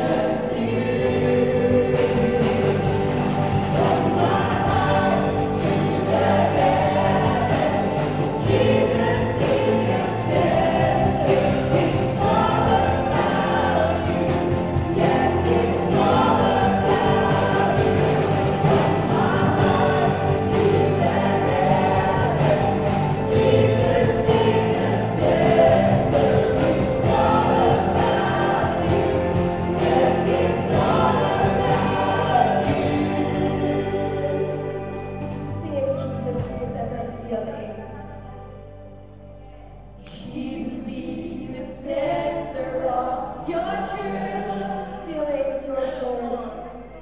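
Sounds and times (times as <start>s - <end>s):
singers singing together: 0.0s - 36.2s, 39.9s - 47.0s
live worship band playing: 0.0s - 45.0s.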